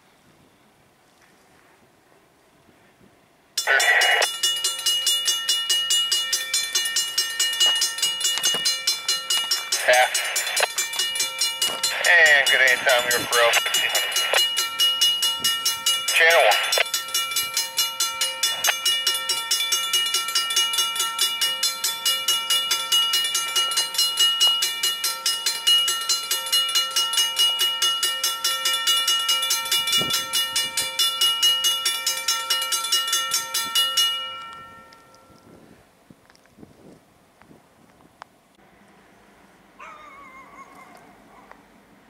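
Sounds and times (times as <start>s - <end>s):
railroad crossing bell ringing: 3.6s - 35.6s.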